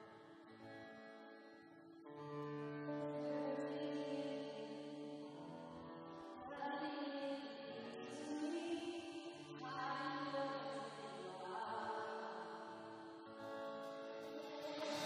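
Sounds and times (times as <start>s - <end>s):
acoustic guitar: 0.0s - 15.0s
person singing long held notes: 14.2s - 15.0s.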